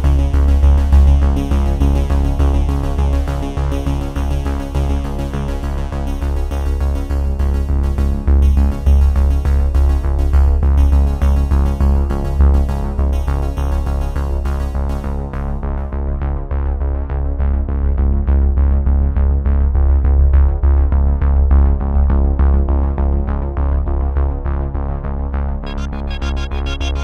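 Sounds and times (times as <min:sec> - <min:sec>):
electronic music with heavy bass: 0:25.6 - 0:27.0.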